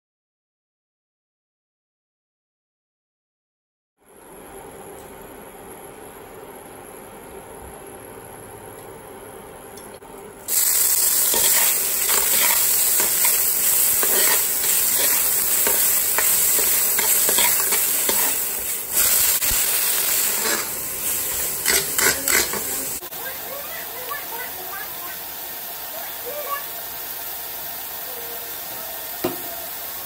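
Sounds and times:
food sizzling in hot oil: 10.4s - 30.0s
spatula scraping a wok: 10.5s - 23.0s.

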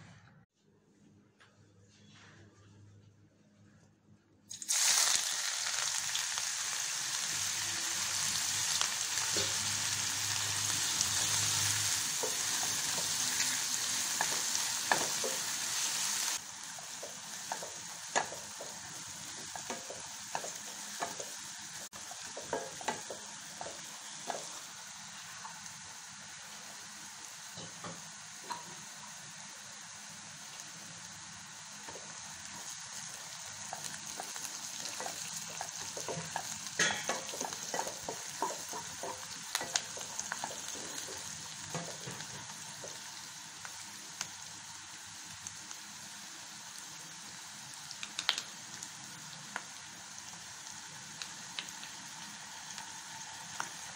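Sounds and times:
onions sizzling in hot oil: 4.5s - 53.9s
spatula clicking and scraping pan: 22.1s - 24.5s, 33.7s - 43.0s.

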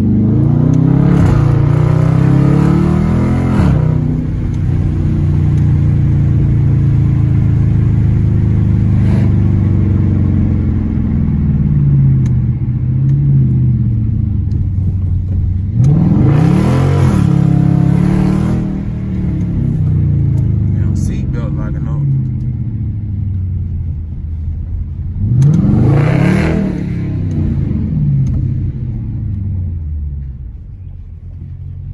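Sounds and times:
engine revving: 0.0s - 13.5s, 15.6s - 23.0s, 25.1s - 29.6s
car engine droning: 0.0s - 31.9s.

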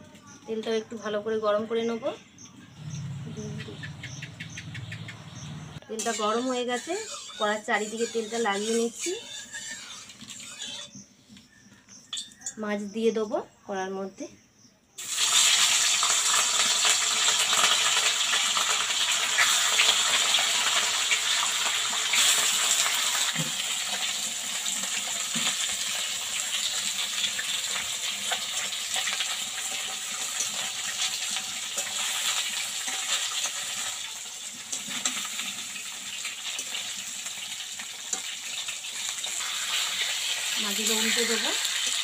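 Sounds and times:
fish sizzling in hot oil: 5.9s - 10.9s, 15.0s - 42.0s.

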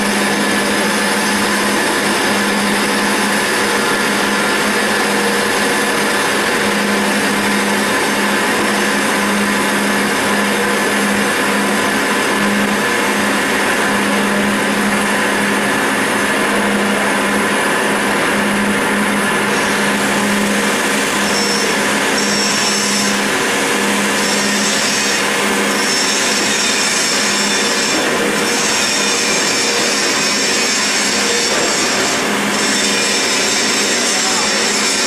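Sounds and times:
lathe machining noise: 0.0s - 35.0s
high tool squeal: 21.2s - 23.3s, 24.0s - 35.0s.

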